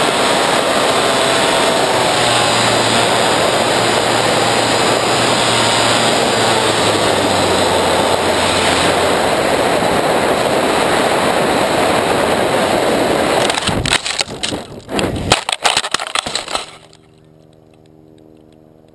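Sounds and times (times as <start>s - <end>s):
model plane motor and wind: 0.0s - 18.9s
cracking snapping impacts: 13.4s - 18.5s.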